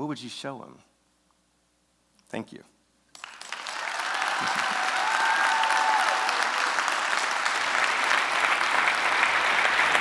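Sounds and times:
audience applauding: 3.1 - 10.0.

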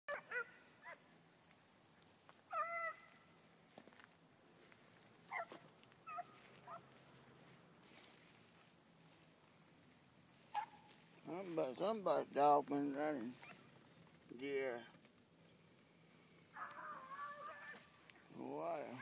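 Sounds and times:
beagles barking and bawling: 0.1 - 1.1, 2.5 - 3.2, 5.2 - 7.1, 10.4 - 11.0, 13.3 - 14.0, 16.4 - 18.1.

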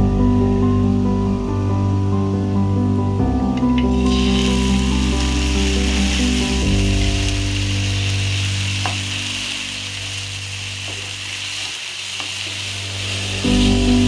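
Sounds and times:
food sizzling in oil: 3.8 - 14.0.

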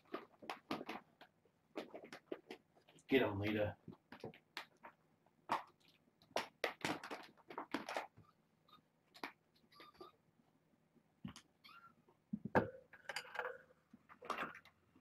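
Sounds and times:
kittens scuffling and tapping: 0.0 - 3.1, 3.8 - 8.3.

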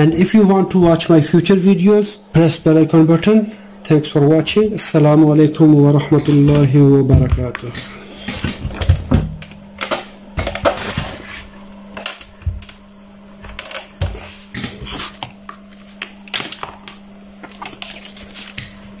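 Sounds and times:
faint steady hum: 0.0 - 19.0
paper rustling: 17.4 - 19.0.

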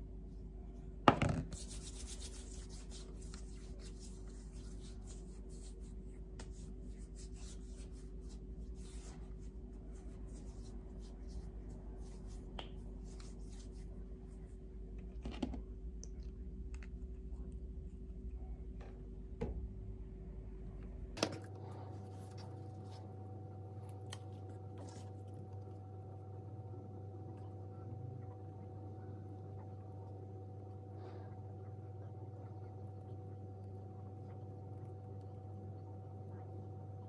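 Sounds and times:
hands rubbing skin: 1.5 - 14.0.

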